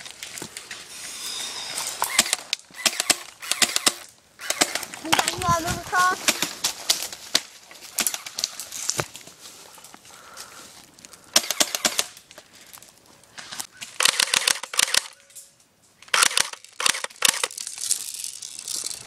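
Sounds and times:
airsoft rifle rapid shots: 2.0 - 5.3, 11.3 - 12.1, 14.0 - 15.1, 16.1 - 17.5.

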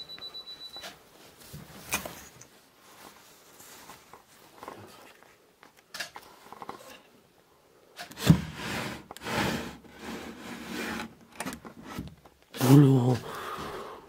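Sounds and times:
wood scraping on wood: 8.2 - 11.2.

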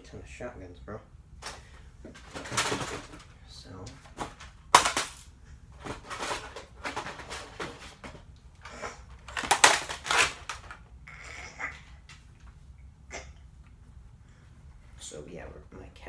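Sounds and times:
plastic toy guns clattering: 2.2 - 3.3, 4.1 - 10.8.

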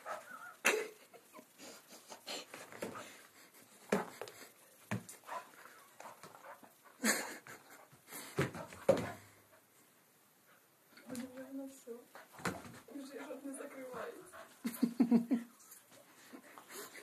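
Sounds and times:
dog pouncing on carpet: 8.2 - 9.3, 12.4 - 12.9.

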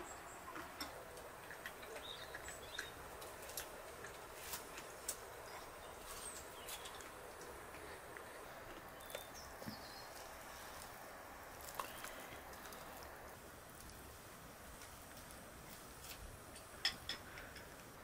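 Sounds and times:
faint steady hiss: 0.0 - 18.0.

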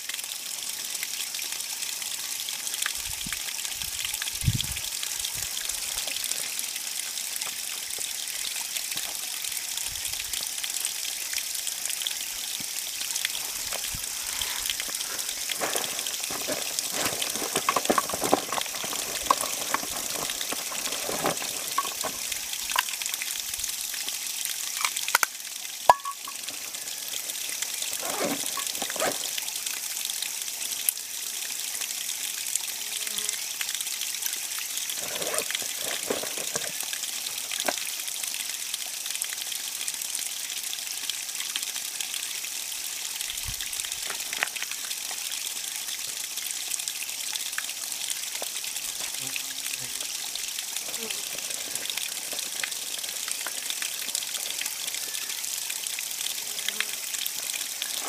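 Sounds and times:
brook splashing over rocks: 10.3 - 30.5, 34.1 - 38.4, 43.4 - 46.5, 47.4 - 58.0.

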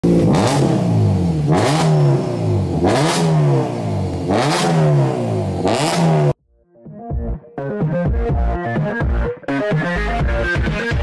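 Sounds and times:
car engine revving: 0.0 - 6.4.

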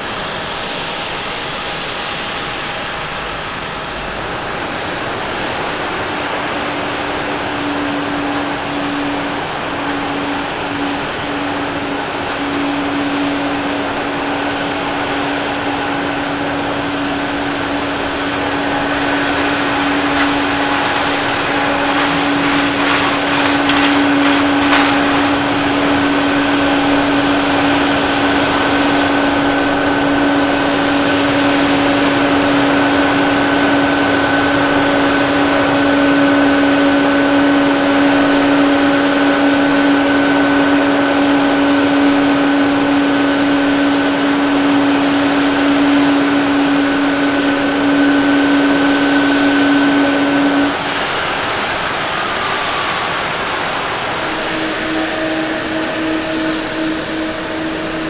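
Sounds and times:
high jet engine whine: 0.0 - 58.0
jet engines roaring at takeoff: 0.0 - 58.0.

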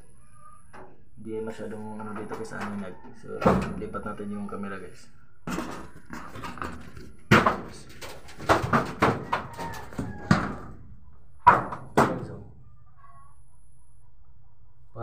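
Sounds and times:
phone knocking on wooden boards: 5.5 - 10.8, 11.4 - 12.4.

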